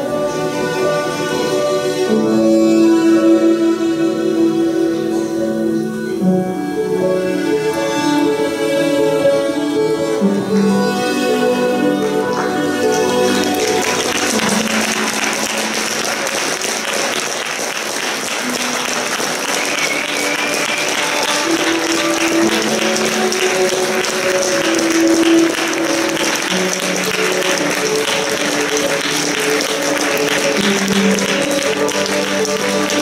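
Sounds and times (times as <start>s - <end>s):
audience applauding: 10.4s - 33.0s.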